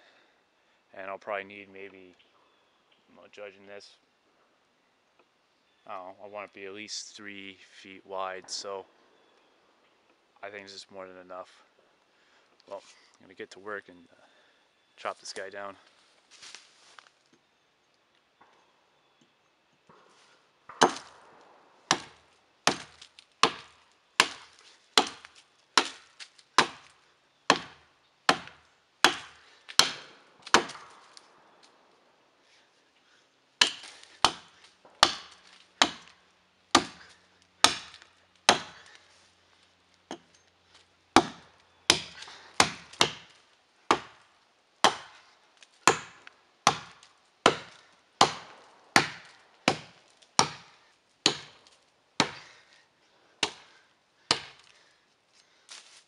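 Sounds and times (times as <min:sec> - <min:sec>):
axe chopping tree trunk: 0:20.7 - 0:31.2, 0:33.6 - 0:39.1, 0:41.1 - 0:52.7, 0:53.4 - 0:54.9.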